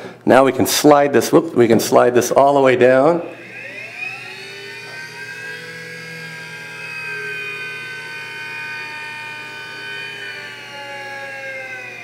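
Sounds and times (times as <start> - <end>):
gearbox whine: 3.3 - 12.0.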